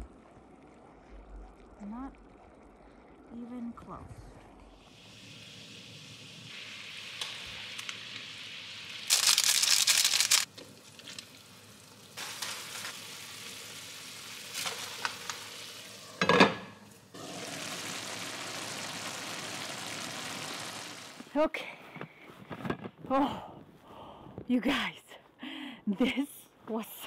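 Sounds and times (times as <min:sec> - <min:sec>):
broth bubbling and sizzling: 0:00.0 - 0:21.4
water boiling: 0:00.0 - 0:21.4.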